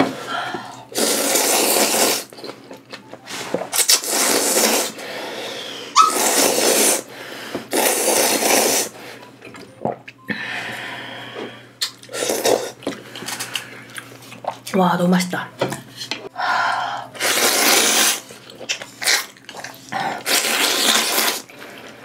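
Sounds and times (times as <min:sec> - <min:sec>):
person slurping noodles: 0:00.9 - 0:02.3, 0:03.8 - 0:07.1, 0:07.7 - 0:09.0, 0:12.1 - 0:12.8, 0:17.1 - 0:18.3, 0:19.0 - 0:21.5.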